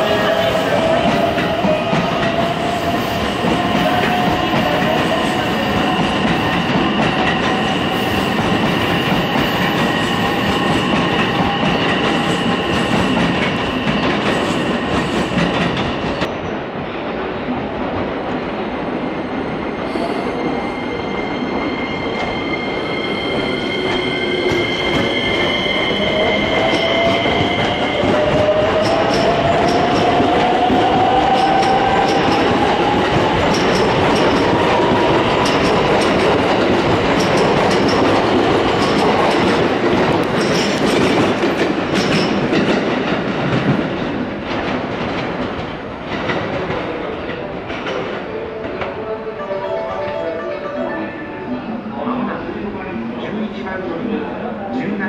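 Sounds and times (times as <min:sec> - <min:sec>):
train wheels rumbling: 0:00.0 - 0:49.1.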